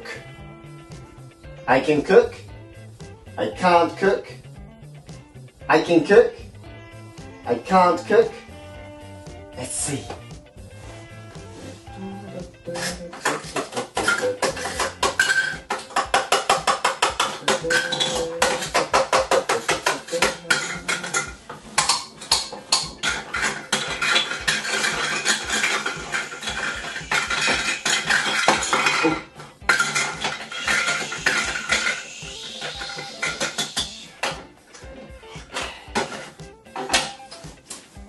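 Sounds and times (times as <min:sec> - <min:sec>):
toy utensils clattering on wood: 0:12.8 - 0:34.5.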